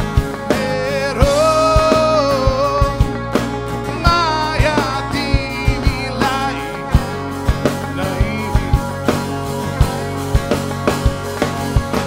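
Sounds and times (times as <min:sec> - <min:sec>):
electric bass: 0:00.0 - 0:12.0
guitar: 0:00.0 - 0:12.0
steady drum beat: 0:00.0 - 0:12.0
man singing: 0:00.4 - 0:09.3.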